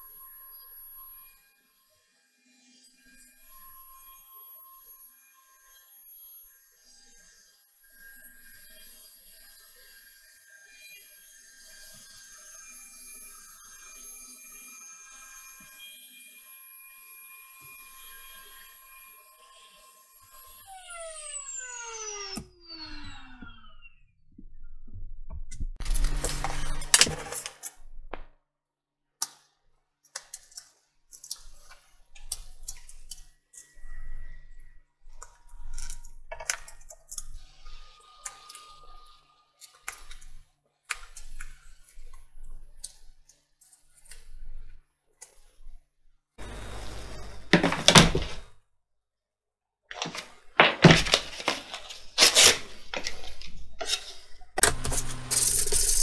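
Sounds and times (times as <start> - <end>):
scraping and rubbing on wood: 49.9 - 56.0.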